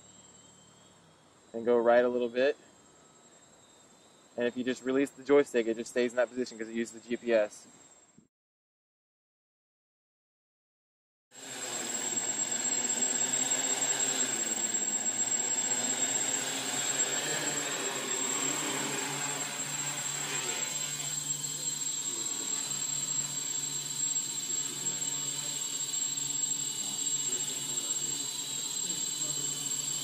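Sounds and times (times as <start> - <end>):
drone propellers whirring: 0.0 - 4.9, 11.4 - 30.0.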